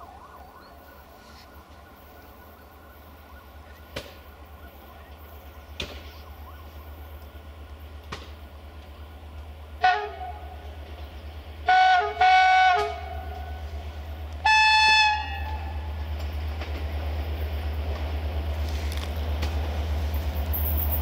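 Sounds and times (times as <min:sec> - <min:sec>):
train rumble: 0:00.8 - 0:21.0
locomotive horn blasts: 0:09.8 - 0:10.7, 0:11.6 - 0:13.8, 0:14.4 - 0:16.0.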